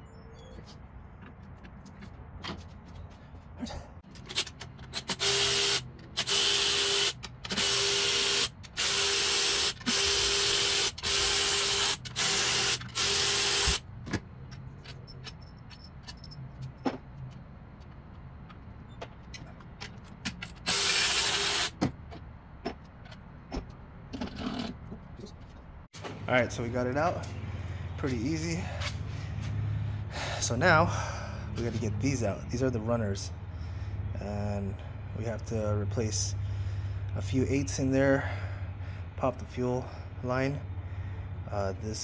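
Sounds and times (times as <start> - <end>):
power ratchet spinning: 4.1 - 13.8, 20.5 - 21.8.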